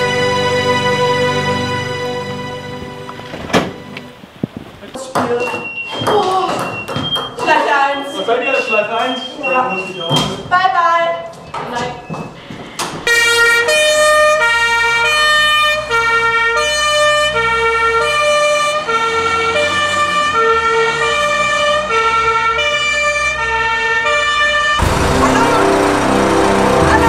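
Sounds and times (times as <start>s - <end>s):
two-tone fire engine siren: 13.1s - 27.0s.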